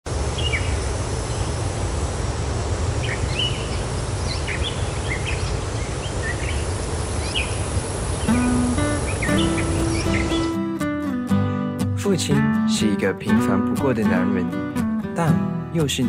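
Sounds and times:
low rumble and hiss: 0.1 - 9.3
bird chirps: 0.4 - 1.5, 3.0 - 10.6.

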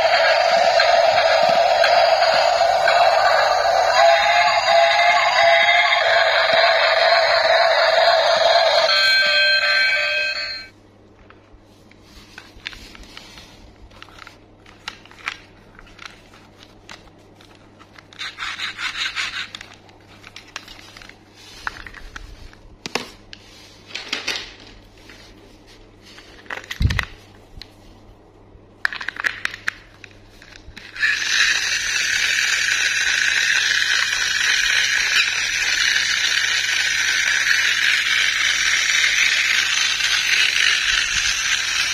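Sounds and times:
plastic toy train rattling: 30.8 - 41.9.

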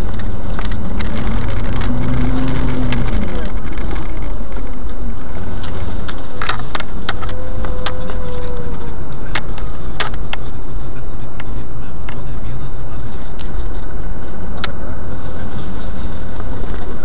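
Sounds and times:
sharp clicks and knocks: 0.0 - 5.0, 9.2 - 10.6
car engine and road rumble: 0.0 - 17.0
faint whine: 0.0 - 17.0.

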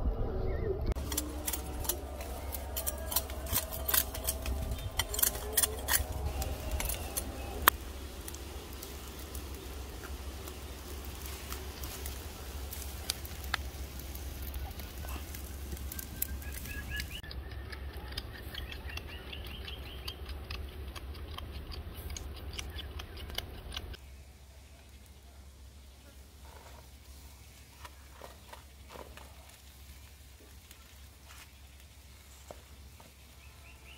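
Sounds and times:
low hum: 0.0 - 25.8
fish grilling with crackles: 1.0 - 28.1, 28.7 - 33.9.

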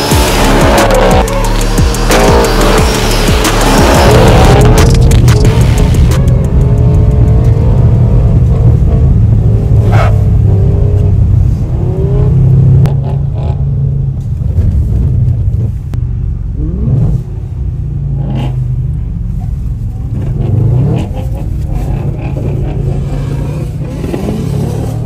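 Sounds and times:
car engine revving hard: 0.0 - 13.7, 20.1 - 25.0.

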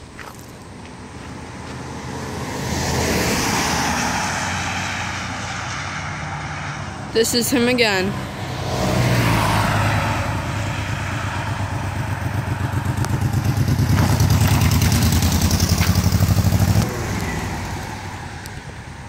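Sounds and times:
motorcycle engine pulsing exhaust: 10.3 - 17.9.

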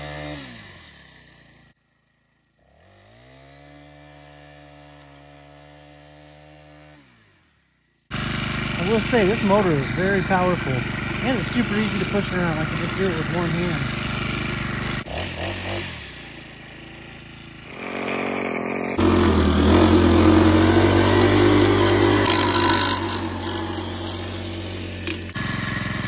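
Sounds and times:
blade cutting grass: 0.0 - 1.7, 2.6 - 26.0
edger engine running: 8.1 - 26.0.

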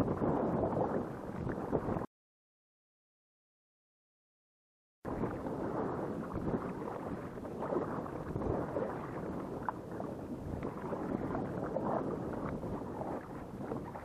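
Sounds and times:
water sloshing around kayak: 0.0 - 2.1, 5.1 - 14.0
wind buffeting microphone: 0.0 - 2.1, 5.1 - 14.0.

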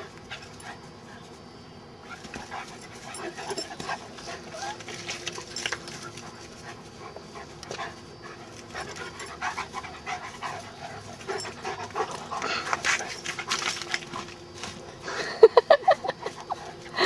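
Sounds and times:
dog panting hard: 6.0 - 13.6.

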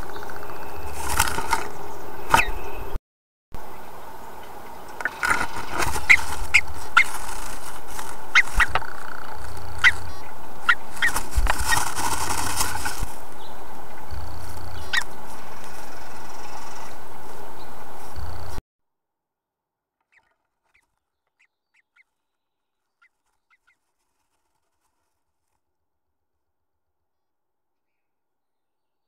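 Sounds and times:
bird wingbeats: 0.0 - 3.0, 4.9 - 18.6
bird feet scraping on wood: 0.8 - 2.6, 4.9 - 13.2, 23.0 - 25.6.

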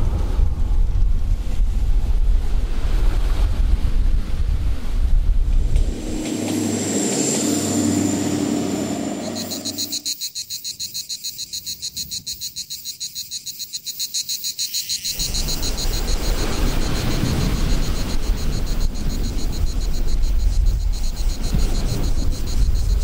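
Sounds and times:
wind rush on microphone: 0.0 - 9.9, 15.2 - 23.0
diesel train engine drone: 5.3 - 10.1
insects chirring: 5.9 - 23.0.

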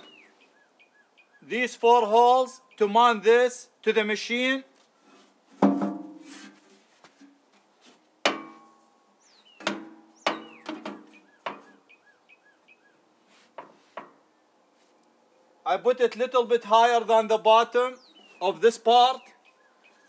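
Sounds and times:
bird chirping: 0.0 - 1.8, 9.0 - 13.1, 17.7 - 20.0.

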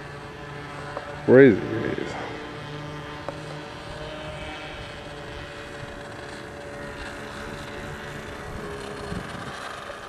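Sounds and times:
model airplane motor drone: 0.0 - 10.0
wind rumble on microphone: 3.9 - 10.0.

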